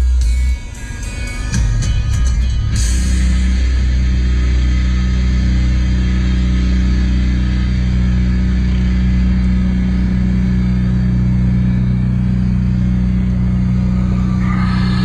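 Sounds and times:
truck engine droning: 1.6 - 15.0
road noise: 12.9 - 15.0.

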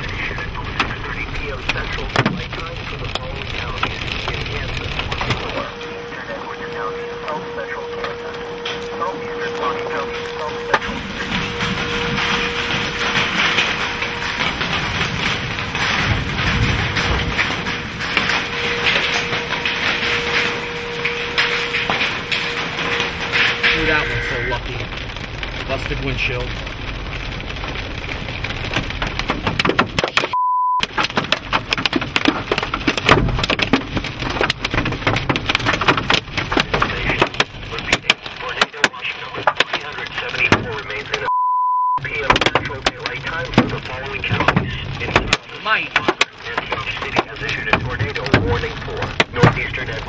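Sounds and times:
hail pelting a vehicle: 0.0 - 41.3, 42.0 - 50.0
high bleep: 22.5 - 24.7, 30.3 - 30.8, 41.2 - 42.1.

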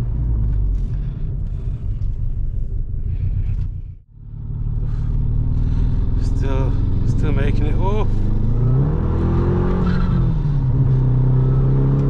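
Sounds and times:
rough car engine running: 0.0 - 12.0.

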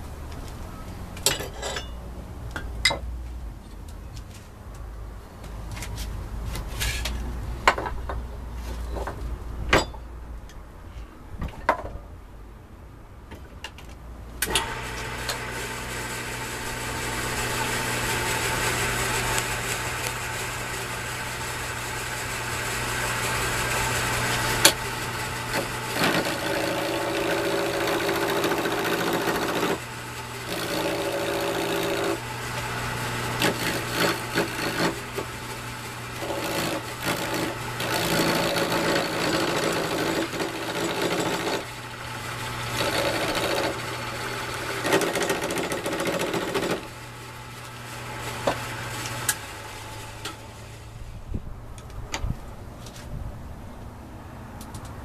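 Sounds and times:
turning tool cutting wood: 14.4 - 50.8
wood lathe motor hum: 14.5 - 50.7.

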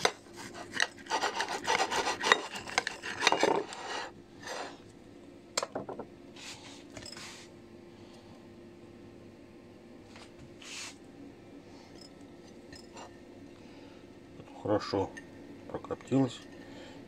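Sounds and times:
knife scraping and tapping plate: 0.0 - 4.7
knife sawing through fat: 0.2 - 4.8.

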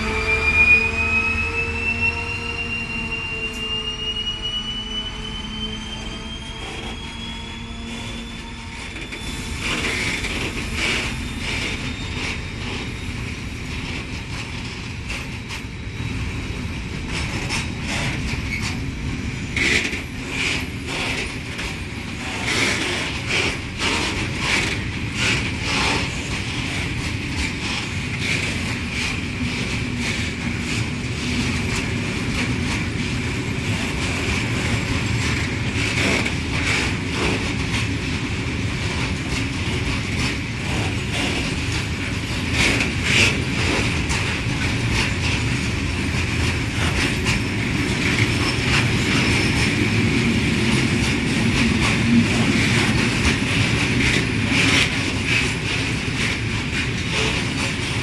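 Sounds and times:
high wheel squeal: 0.0 - 14.0
wheels rumbling on rails: 0.0 - 58.0.

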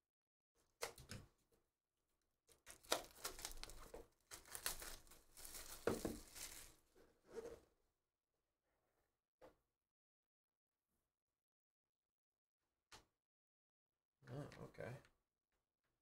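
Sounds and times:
plastic wrap tearing and crinkling: 2.6 - 6.9.

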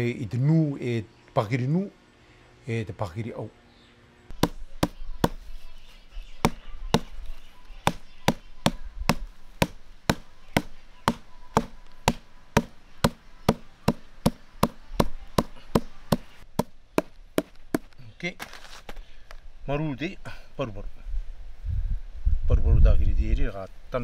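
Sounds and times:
hammer pounding bark on wood: 4.3 - 5.4, 6.4 - 7.2, 7.8 - 17.9.

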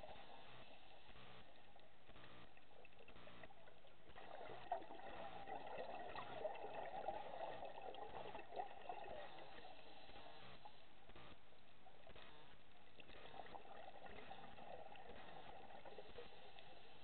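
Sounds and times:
diver's bubbles gurgling: 1.4 - 10.1, 13.0 - 16.8.

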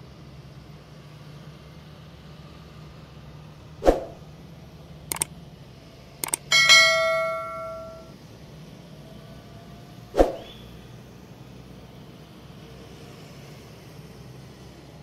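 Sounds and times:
tractor engines droning: 0.1 - 15.0
quick clicks: 5.1 - 5.3, 6.2 - 6.6
loud metallic clang: 6.2 - 8.1
sharp hit: 6.5 - 8.1.

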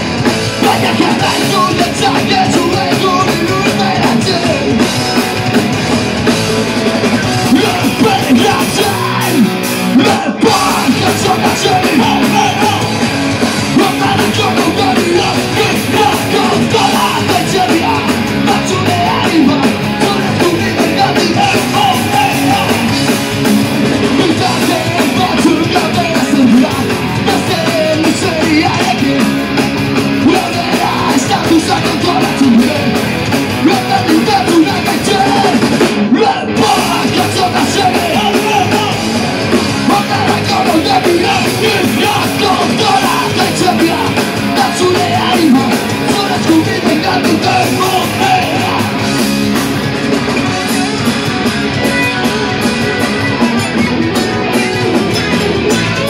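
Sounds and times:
rock band playing loud: 0.0 - 56.0
lead singer's vocals: 0.6 - 5.2, 7.4 - 13.0, 13.6 - 23.1, 24.1 - 29.4, 30.1 - 49.1.

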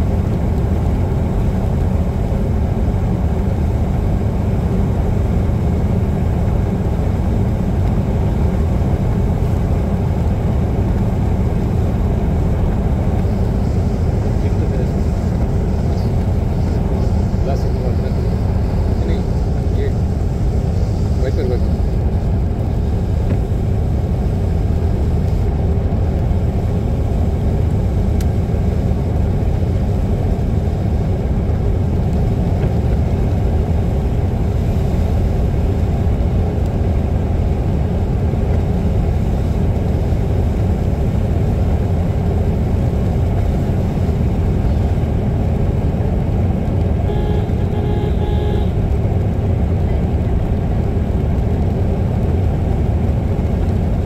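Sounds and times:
car engine and tyres rumbling: 0.0 - 54.0
brief pitched tone: 47.1 - 48.8.

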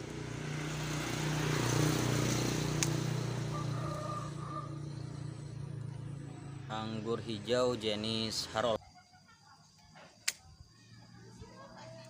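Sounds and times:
vehicle engine passing: 0.0 - 8.6
pruning shears snip: 2.3 - 3.0, 10.2 - 10.5.

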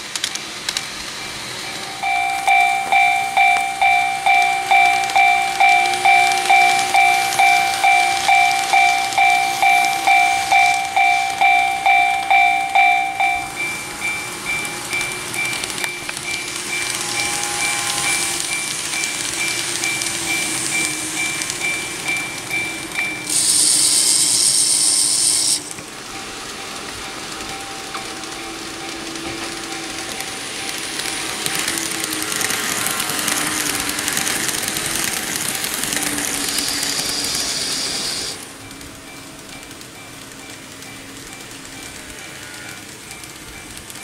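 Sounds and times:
loud hiss: 0.0 - 27.8, 30.0 - 38.5
model train rumbling on track: 0.0 - 44.0
level crossing bell dinging: 1.6 - 23.3.

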